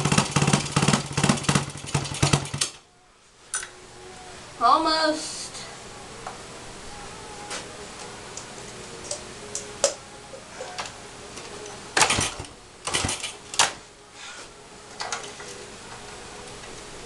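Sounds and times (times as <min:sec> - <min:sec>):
motorcycle kick starter strokes: 0:00.0 - 0:02.8, 0:12.0 - 0:13.7.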